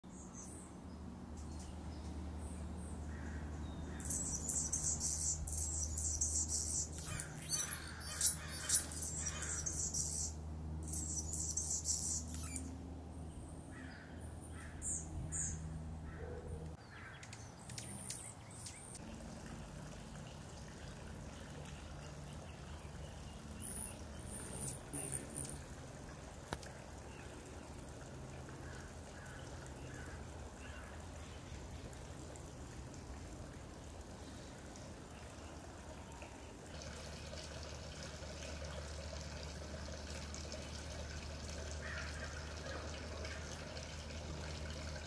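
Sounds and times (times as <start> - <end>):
high hummingbird song: 0.1 - 15.7, 16.8 - 19.0, 21.7 - 25.8
low steady hum: 17.7 - 45.0.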